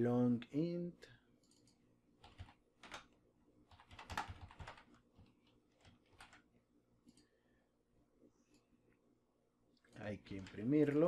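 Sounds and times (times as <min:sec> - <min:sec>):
typing on a computer keyboard: 0:01.4 - 0:03.1, 0:03.7 - 0:06.4.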